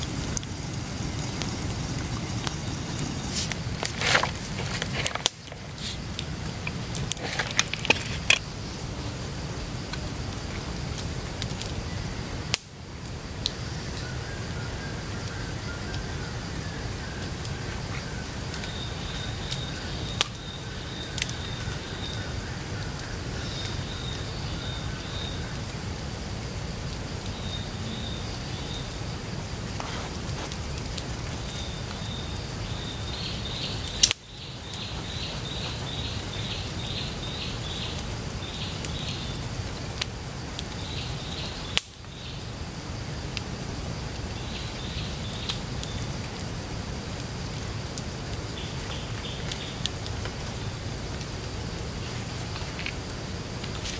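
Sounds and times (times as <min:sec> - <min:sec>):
small birds chirping: 0:00.0 - 0:09.1, 0:29.8 - 0:39.5, 0:48.4 - 0:50.8
campfire wood snapping: 0:00.0 - 0:14.2, 0:16.8 - 0:53.9.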